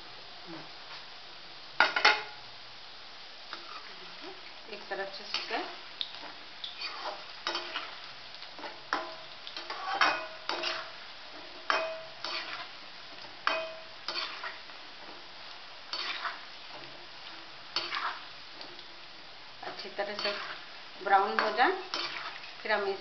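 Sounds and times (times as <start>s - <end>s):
deep-frying sizzle: 0.0s - 23.0s
metal spoon scraping metal pan: 6.8s - 7.9s, 8.6s - 10.9s, 11.6s - 12.7s, 13.5s - 14.6s, 15.9s - 16.4s, 17.8s - 18.2s, 19.7s - 20.6s, 21.2s - 22.3s.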